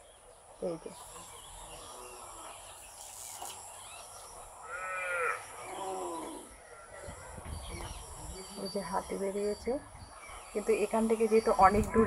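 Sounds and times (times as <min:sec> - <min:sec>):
faint outdoor background noise: 0:00.0 - 0:12.0
drawn-out animal calls: 0:04.6 - 0:06.6.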